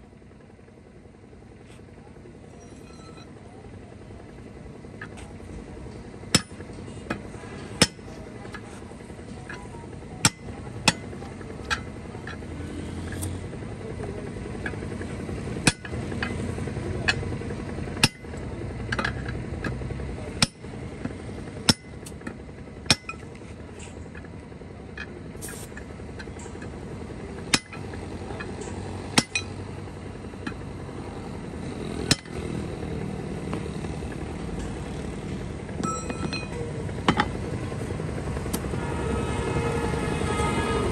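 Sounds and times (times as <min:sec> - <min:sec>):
hammer clanking on steel bar: 0:29.2 - 0:29.5.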